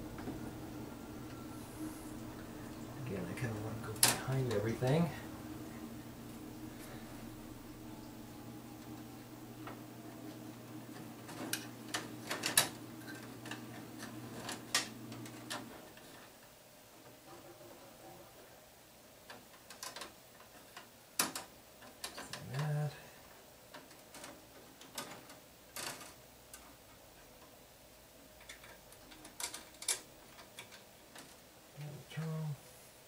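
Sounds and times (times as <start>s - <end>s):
brief low hum: 0.0s - 10.9s
wire tapping metal panel: 2.2s - 16.2s.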